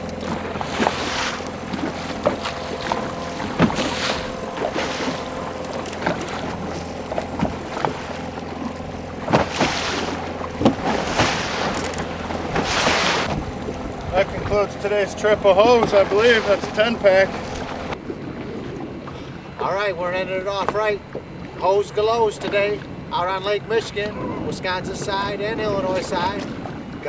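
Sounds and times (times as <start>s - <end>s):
outboard motor humming: 0.0s - 27.0s
wind buffeting microphone: 0.0s - 27.0s.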